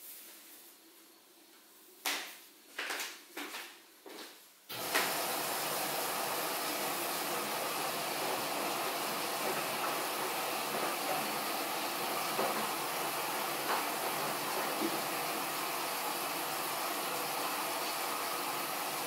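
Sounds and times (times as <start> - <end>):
water rushing in with hiss: 4.7 - 19.0.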